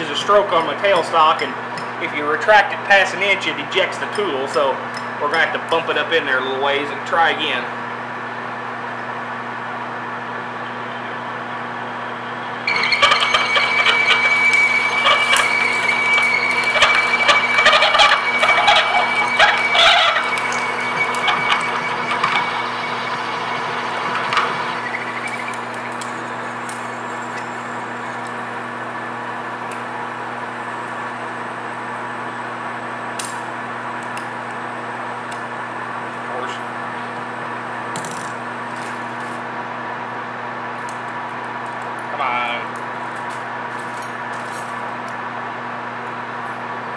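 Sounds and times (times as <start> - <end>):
lathe drilling aluminum: 12.6 - 36.3
lathe humming: 12.6 - 38.8.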